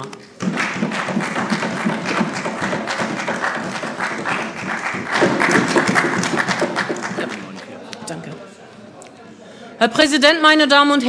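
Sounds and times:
group of people clapping: 0:00.0 - 0:08.4.

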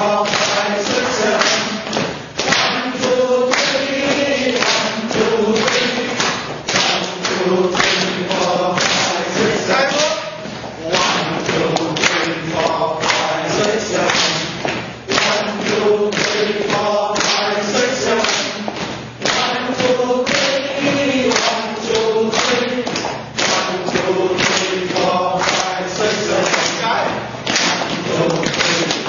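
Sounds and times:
group clapping in rhythm: 0:00.0 - 0:29.0
stepping in rhythm: 0:00.0 - 0:29.0
voices chanting together: 0:00.0 - 0:29.0.

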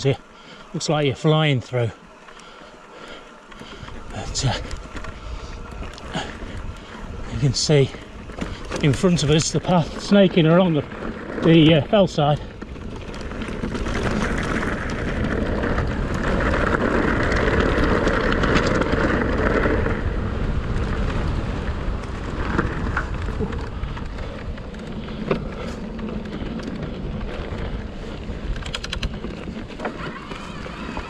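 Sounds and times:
wind and tyre rush: 0:00.0 - 0:31.0
rapid clicks: 0:22.4 - 0:31.0.

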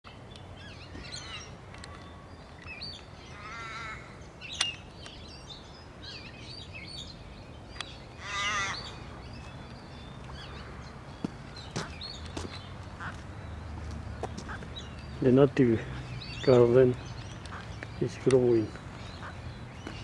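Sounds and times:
birds chirping: 0:00.1 - 0:20.0
harsh bird calls: 0:00.1 - 0:20.0.

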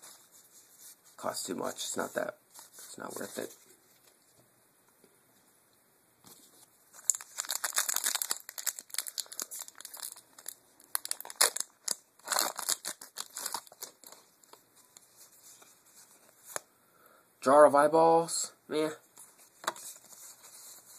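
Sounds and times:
foil wrapper tearing and crinkling: 0:07.0 - 0:14.2.

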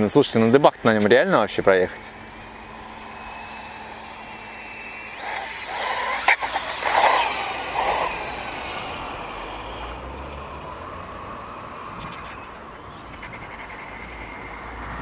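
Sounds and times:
toy motorcycle electric motor whining: 0:00.3 - 0:10.1.

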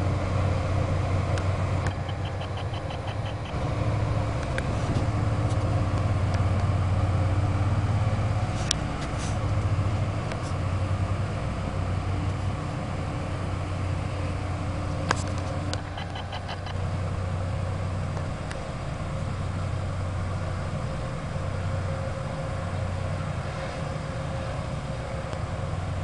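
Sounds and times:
locomotive rolling with low hum: 0:00.0 - 0:26.0
quick light ticks: 0:01.4 - 0:03.6.

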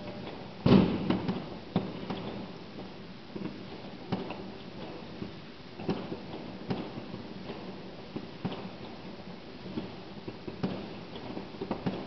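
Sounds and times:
firework pops and cracks: 0:00.0 - 0:12.0
loud firework bang with echo: 0:00.6 - 0:02.0.

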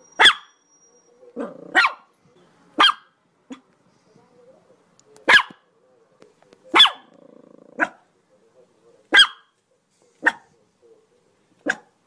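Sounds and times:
dog barking: 0:00.2 - 0:00.6, 0:01.4 - 0:02.1, 0:02.8 - 0:03.7, 0:05.2 - 0:05.7, 0:06.7 - 0:08.1, 0:09.1 - 0:09.6, 0:10.2 - 0:10.6, 0:11.6 - 0:12.0.

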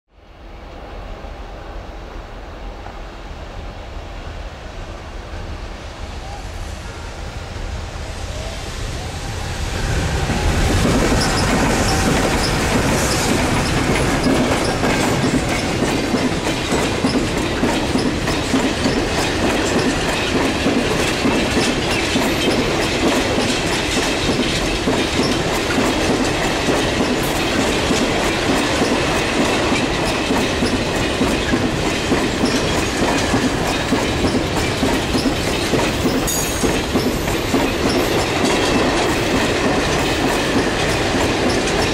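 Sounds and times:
locomotives passing: 0:05.4 - 0:41.9
train wagons rumbling: 0:07.3 - 0:41.9
high wheel squeal: 0:09.9 - 0:15.6
wheels clacking over rail joints: 0:10.2 - 0:41.9.

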